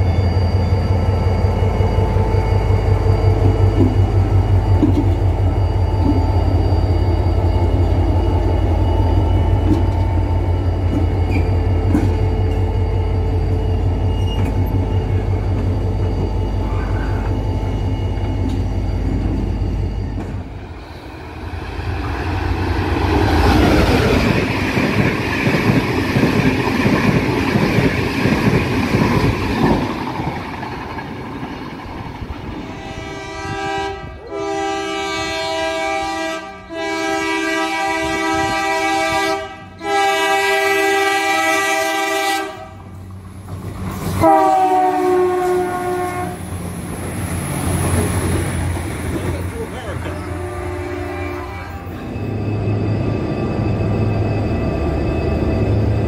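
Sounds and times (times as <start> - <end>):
train wagons rumbling and clattering: 0.0 - 56.0
train horn blasts: 32.6 - 43.0, 44.1 - 46.5, 50.1 - 52.1.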